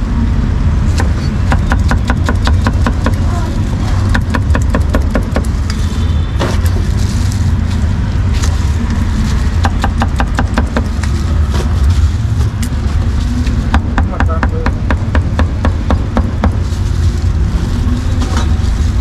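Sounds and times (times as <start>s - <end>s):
street traffic rumble: 0.0s - 19.0s
cleaver chopping on wood: 1.0s - 3.2s.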